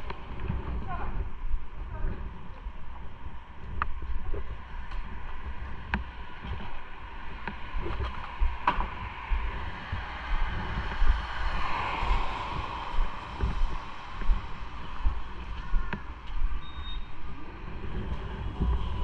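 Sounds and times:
wind rumbling on microphone: 0.0s - 19.0s
road hiss: 9.0s - 15.5s.

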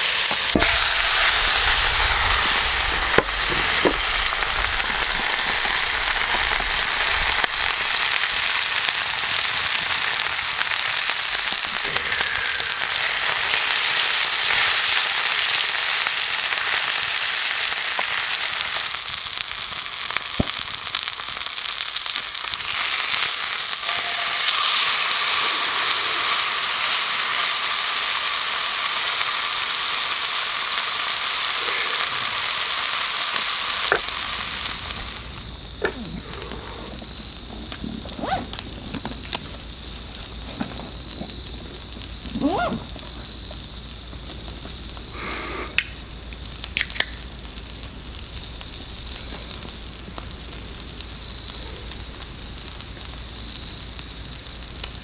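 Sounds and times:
steak sizzling in a skillet: 0.0s - 55.0s
fat popping: 0.3s - 7.9s, 33.8s - 34.2s, 35.0s - 43.3s.

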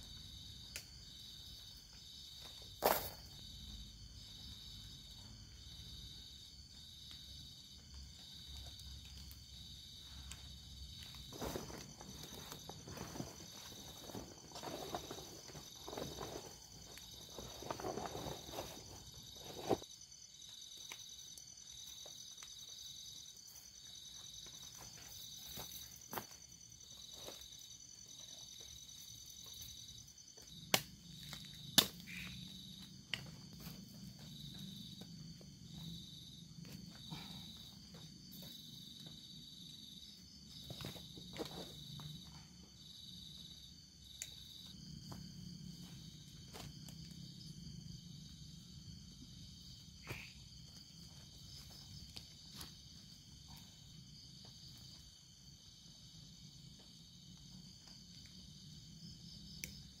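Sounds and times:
night insects chirping: 0.0s - 60.0s
knocks of tent stakes and gear: 2.4s - 3.4s, 10.4s - 19.9s.

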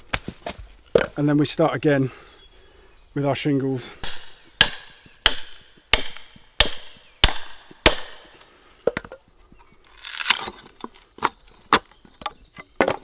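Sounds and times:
wood crackling apart: 9.8s - 11.4s.

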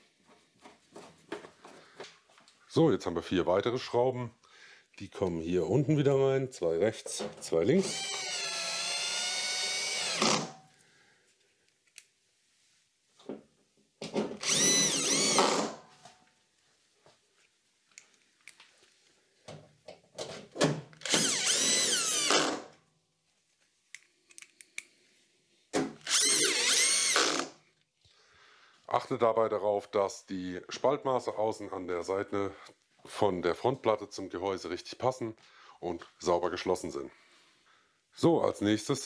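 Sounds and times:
cordless drill driving screws: 7.8s - 10.6s, 14.4s - 15.8s, 21.0s - 22.7s, 26.0s - 27.6s.

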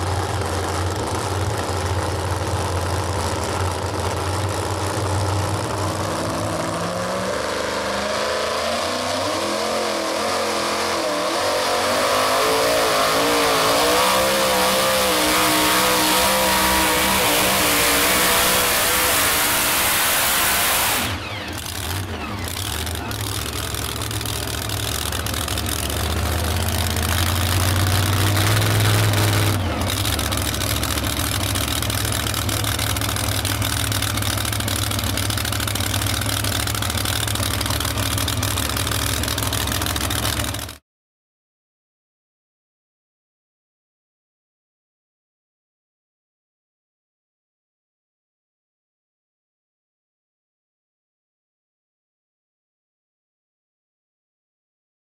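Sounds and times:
supercharged truck engine revving: 0.0s - 40.8s.

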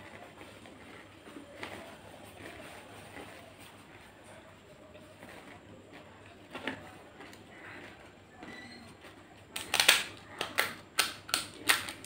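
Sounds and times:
crisp shell cracking: 9.5s - 12.0s.

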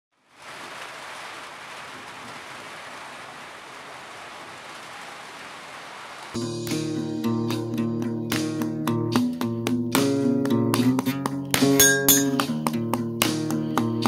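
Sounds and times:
steady rain falling: 0.1s - 6.4s
strummed guitar music: 6.4s - 14.0s.

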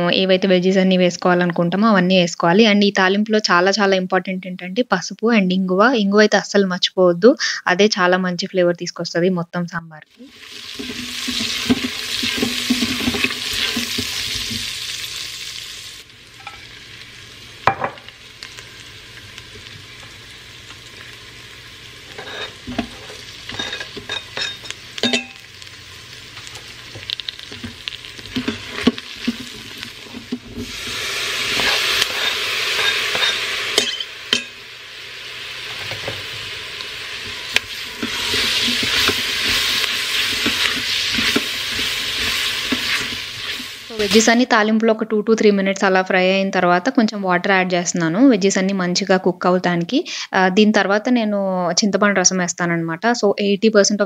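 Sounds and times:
vegetables sizzling in hot oil: 10.1s - 46.3s
spoon knocking and scraping pot: 10.8s - 14.6s, 22.1s - 25.4s, 26.9s - 30.7s, 31.5s - 34.6s, 38.0s - 43.6s.

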